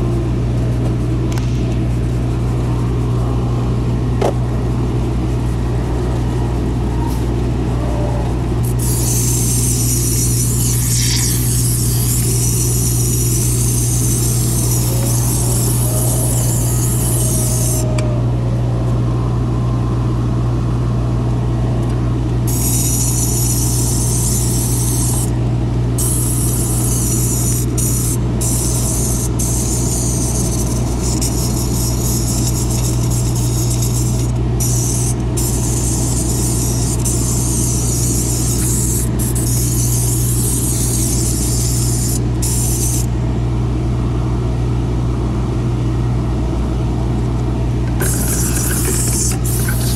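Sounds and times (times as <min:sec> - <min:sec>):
low hum: 0:00.0 - 0:22.6
steam cleaner hissing: 0:08.8 - 0:17.8, 0:48.0 - 0:49.9.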